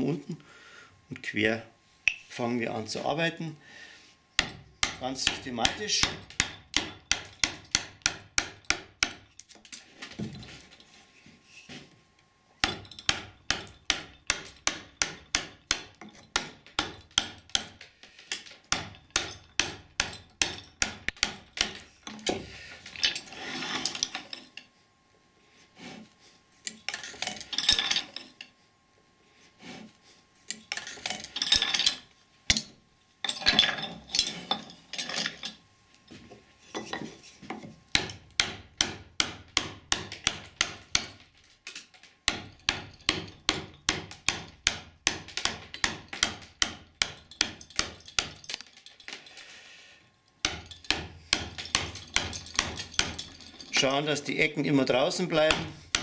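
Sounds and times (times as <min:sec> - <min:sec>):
mallet striking chisel into wood: 0:04.4 - 0:09.3, 0:12.6 - 0:17.8, 0:18.7 - 0:22.4, 0:37.9 - 0:41.2, 0:42.2 - 0:48.4, 0:50.4 - 0:53.2, 0:55.5 - 0:56.0
chisel scraping wood: 0:23.2 - 0:24.0.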